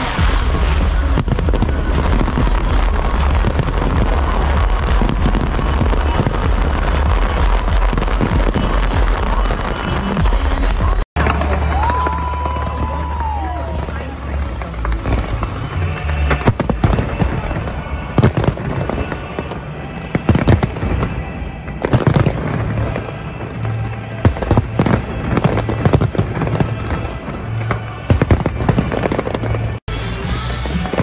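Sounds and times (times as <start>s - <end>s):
fireworks bangs: 0.0s - 31.0s
music with bass line: 0.1s - 12.0s.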